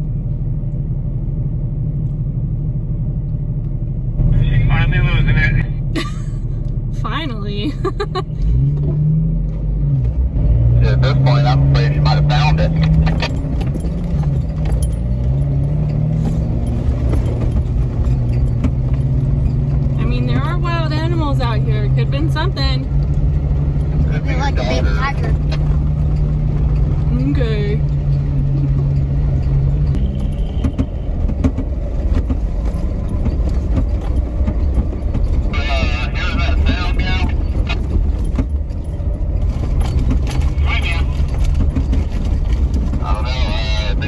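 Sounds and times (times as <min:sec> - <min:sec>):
tyres on gravel road: 0:00.0 - 0:44.0
vehicle engine running: 0:00.0 - 0:44.0
knocks and rattles: 0:12.3 - 0:24.2, 0:25.0 - 0:44.0
loose items jangling: 0:12.4 - 0:21.3, 0:32.0 - 0:43.9.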